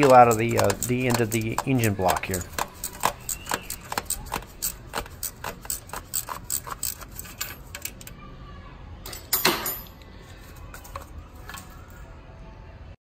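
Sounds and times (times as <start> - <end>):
metal scrape: 0.0 - 7.8
hand ratchet clicking: 0.0 - 8.1.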